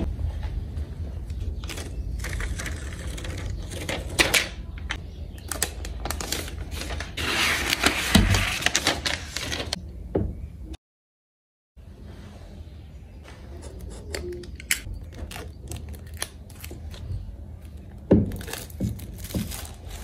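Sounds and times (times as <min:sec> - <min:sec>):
protective wrap crinkling: 0:05.4 - 0:09.8, 0:15.0 - 0:17.1, 0:17.7 - 0:20.0.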